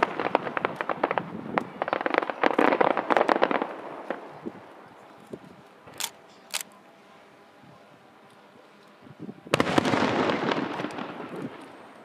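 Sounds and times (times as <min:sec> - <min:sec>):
crackling firework pops: 0:00.0 - 0:04.3, 0:09.6 - 0:12.0
firework bangs: 0:00.0 - 0:04.4, 0:09.5 - 0:12.0.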